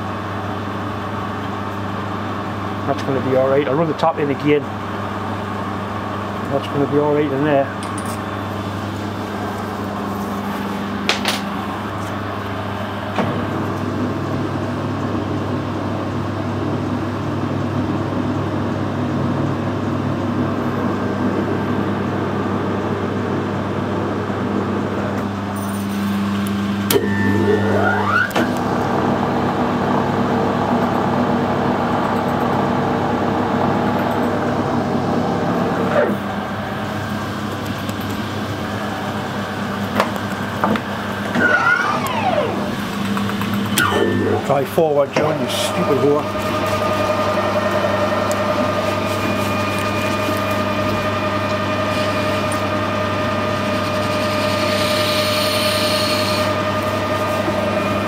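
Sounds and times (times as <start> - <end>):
metal lathe humming: 4.7 - 14.1, 25.3 - 58.0
short rising whine: 25.6 - 58.0.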